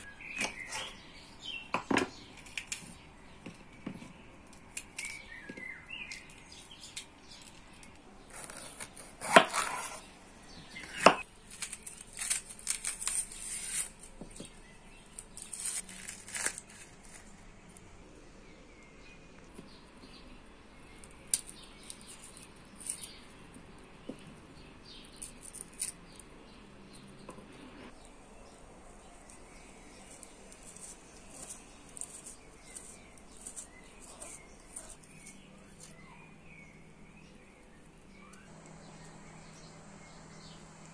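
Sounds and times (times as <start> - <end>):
rustling and scraping: 29.3 - 36.0.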